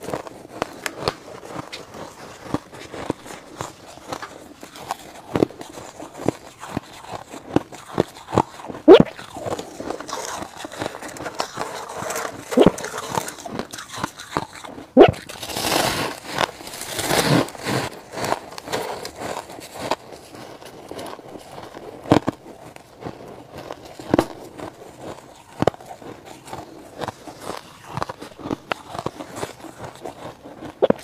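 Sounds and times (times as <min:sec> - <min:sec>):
crunching and chewing ice: 0:00.0 - 0:31.0.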